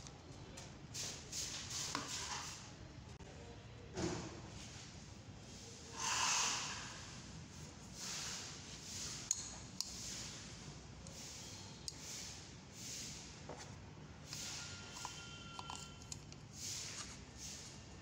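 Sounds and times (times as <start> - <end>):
person breathing near microphone: 5.8 - 7.2.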